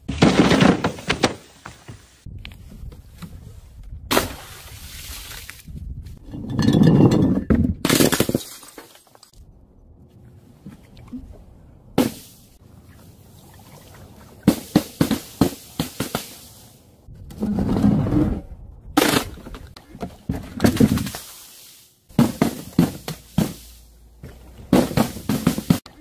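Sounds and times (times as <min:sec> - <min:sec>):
objects striking the ground: 0:00.0 - 0:02.2.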